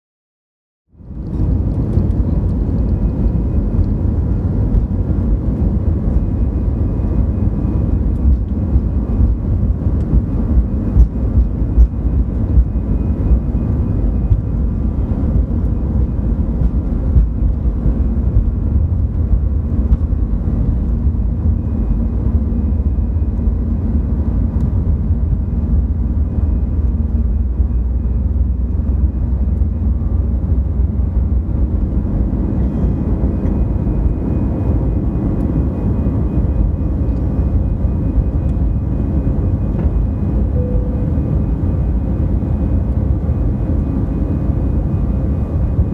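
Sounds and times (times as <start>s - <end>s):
jet engines and wheels rumbling: 0.9s - 45.9s
faint high whine: 32.2s - 45.9s.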